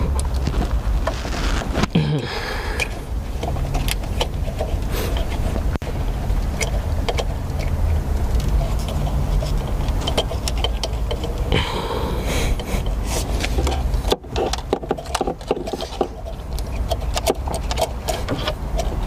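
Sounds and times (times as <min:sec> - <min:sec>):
steady low rumble: 0:00.0 - 0:14.6
hand tools and parts rattling: 0:00.0 - 0:19.0.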